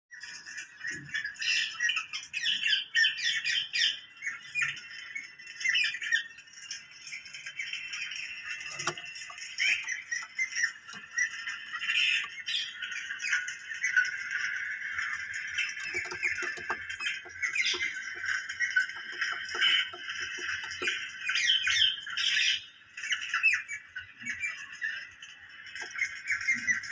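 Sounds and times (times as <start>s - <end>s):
parakeets squawking and chirping: 15.4s - 22.7s.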